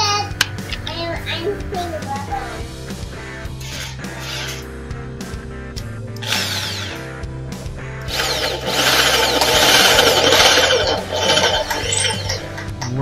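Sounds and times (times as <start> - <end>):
impact drill boring into plywood: 6.2 - 7.0, 8.1 - 12.4.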